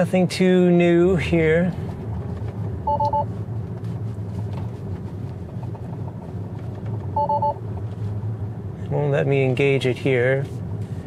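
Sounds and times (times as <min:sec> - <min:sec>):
road and tyre noise in car: 0:00.0 - 0:11.0.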